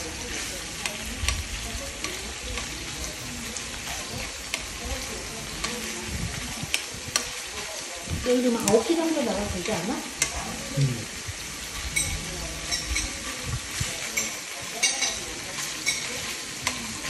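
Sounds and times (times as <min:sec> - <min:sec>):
meat sizzling in a frying pan: 0:00.0 - 0:17.0
metal tongs clicking on pan: 0:00.2 - 0:06.0, 0:06.7 - 0:07.5, 0:08.4 - 0:09.0, 0:09.6 - 0:10.5, 0:12.0 - 0:17.0.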